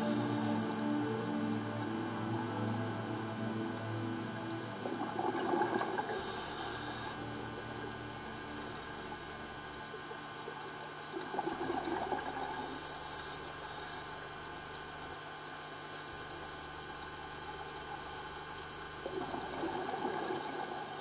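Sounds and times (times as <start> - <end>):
hissing regulator inhalation: 0.0 - 10.0.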